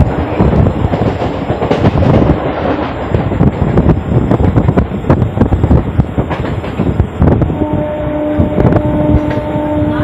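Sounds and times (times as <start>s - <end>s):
train wheels clattering: 0.0s - 7.4s
wind rushing: 0.0s - 10.0s.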